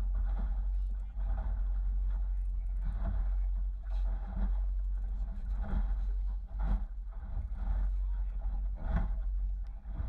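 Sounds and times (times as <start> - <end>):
outboard motor humming: 0.0 - 10.0.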